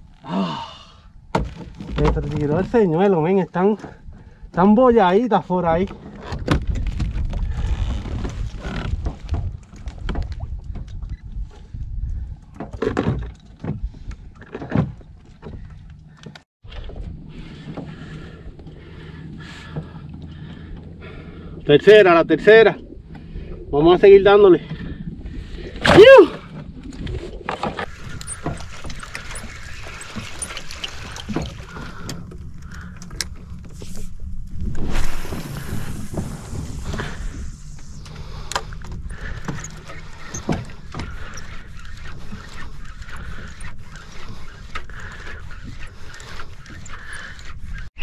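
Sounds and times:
wind and water rumble: 0:00.0 - 0:48.0
knocks and thumps on boat: 0:01.3 - 0:03.1, 0:05.7 - 0:20.9, 0:38.6 - 0:41.6.

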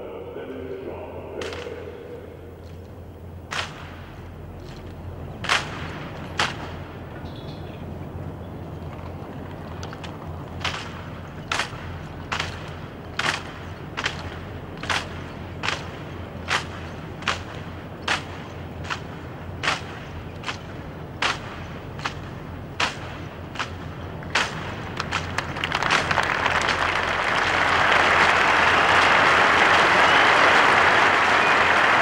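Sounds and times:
low background hum: 0:00.0 - 0:32.0
hands slapping rifles: 0:01.4 - 0:01.8, 0:03.5 - 0:07.2, 0:08.8 - 0:28.3.

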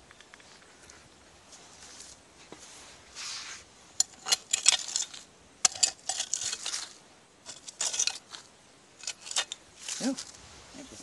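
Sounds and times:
glass shards clinking: 0:04.0 - 0:08.4, 0:09.0 - 0:10.2
digging tool scraping debris: 0:04.0 - 0:10.3.

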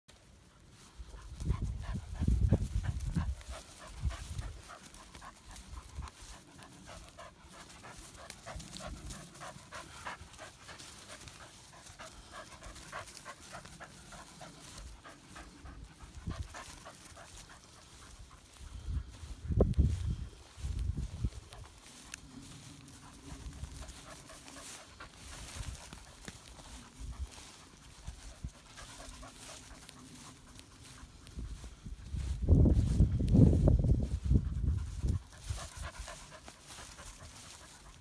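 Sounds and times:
dog panting: 0:00.2 - 0:33.3, 0:33.9 - 0:38.0
low rumble on microphone: 0:30.9 - 0:36.8.

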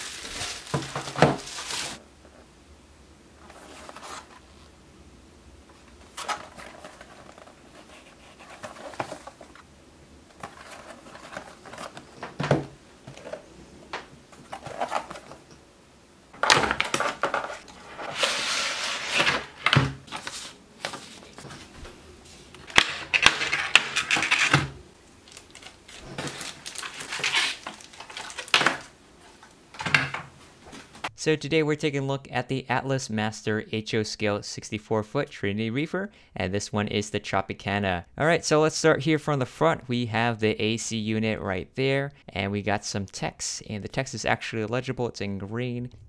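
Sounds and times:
plastic tray crinkling: 0:00.0 - 0:02.0, 0:10.3 - 0:13.5, 0:14.4 - 0:15.5, 0:16.4 - 0:21.7, 0:22.6 - 0:29.9
cardboard boxes sliding: 0:17.4 - 0:22.5.

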